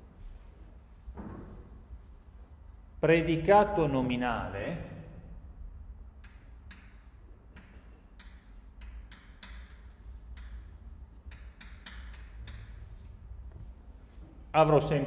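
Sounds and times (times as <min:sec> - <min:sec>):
chalk tapping and scratching: 0:06.1 - 0:14.4.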